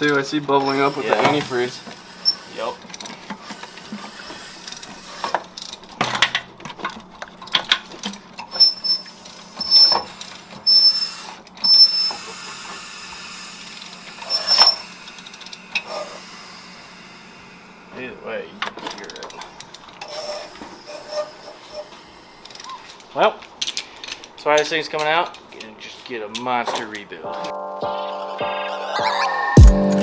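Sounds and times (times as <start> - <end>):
short high squeaks: 0.0 - 5.7, 8.4 - 18.1, 18.9 - 23.0
hissing and bubbling in engine cylinders: 0.0 - 25.7.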